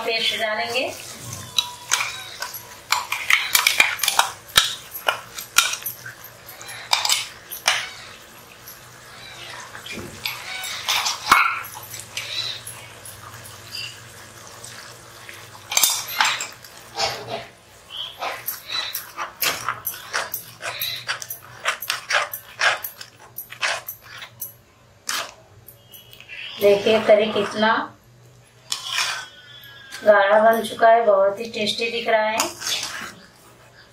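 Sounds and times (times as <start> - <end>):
metal spatula scraping a pan: 0.0 - 8.2, 15.7 - 17.5, 18.1 - 27.7, 28.6 - 30.8, 32.0 - 33.9.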